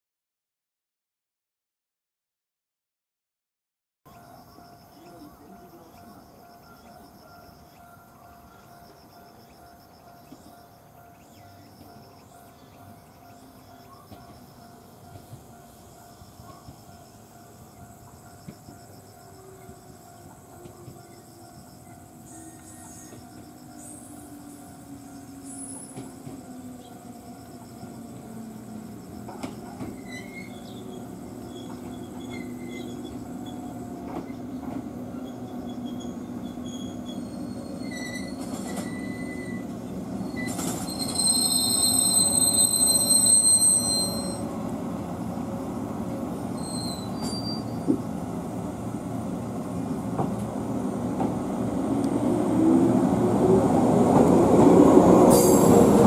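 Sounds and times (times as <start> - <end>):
electric train slowing: 4.1 - 56.0
high brake squeal: 22.2 - 26.4, 29.6 - 34.4, 35.2 - 44.6, 46.4 - 48.0, 55.3 - 56.0.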